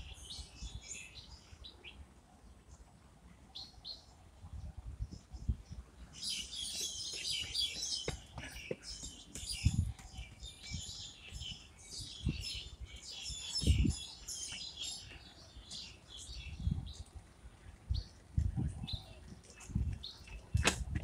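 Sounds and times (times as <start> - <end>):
small birds chirping: 0.0 - 20.6.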